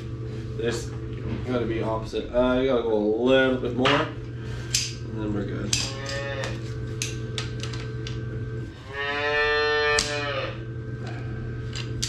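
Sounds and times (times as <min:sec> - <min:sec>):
steady low hum: 0:00.0 - 0:12.0
calf bawling: 0:05.8 - 0:06.6, 0:08.8 - 0:10.7.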